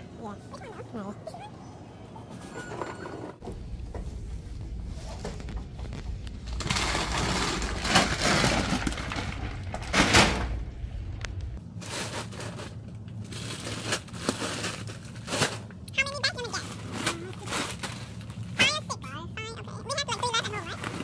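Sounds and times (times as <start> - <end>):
plastic bags crinkling and rustling: 5.0 - 10.3, 11.6 - 15.8, 16.6 - 18.6.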